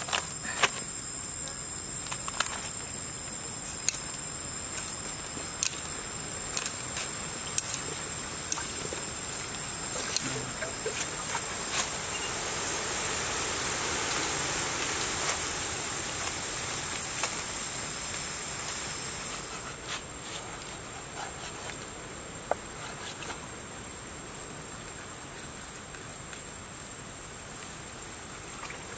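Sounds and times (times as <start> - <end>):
high-pitched insect drone: 0.0 - 21.5.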